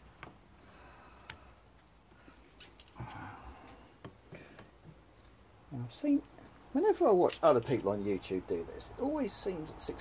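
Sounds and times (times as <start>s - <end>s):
pliers clicking on metal: 7.2s - 8.0s.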